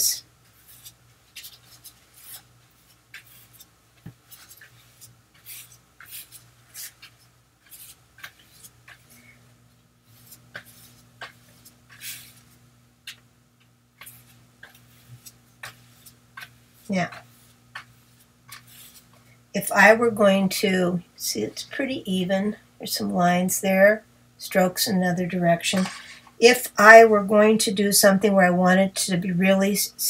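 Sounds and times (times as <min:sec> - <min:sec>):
brush swishing on paper: 0:00.4 - 0:09.4, 0:10.0 - 0:13.2, 0:14.0 - 0:19.2.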